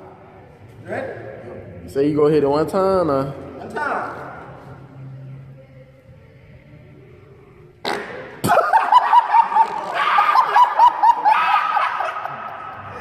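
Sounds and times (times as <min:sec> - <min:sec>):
rapid high-pitched laughter: 0:08.5 - 0:13.0.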